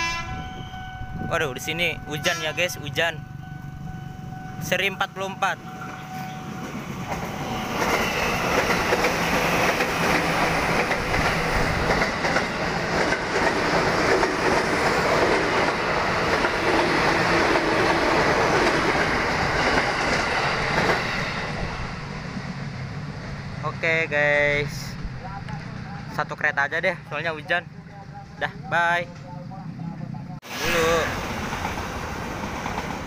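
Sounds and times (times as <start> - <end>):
electric train passing: 0.0 - 33.0
wheels clacking over rail joints: 6.7 - 21.3.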